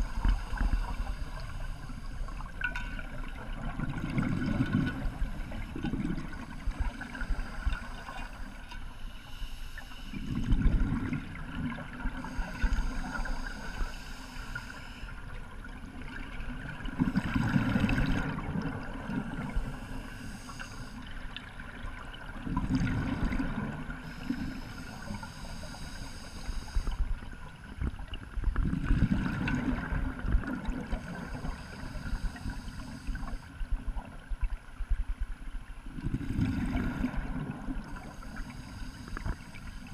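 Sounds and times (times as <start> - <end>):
regulator demand valve hiss: 12.2 - 15.1, 19.6 - 21.0, 24.0 - 27.0.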